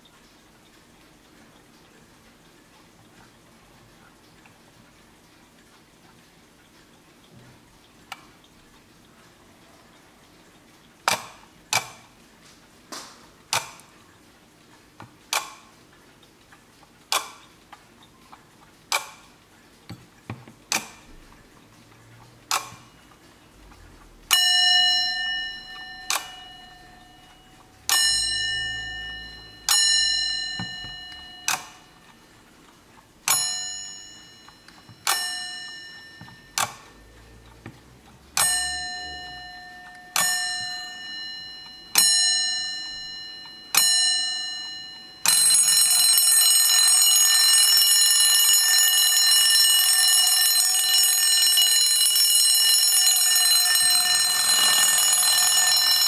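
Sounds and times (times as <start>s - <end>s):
alarm clock bell ringing: 24.3s - 32.3s, 33.3s - 37.4s, 38.4s - 56.0s.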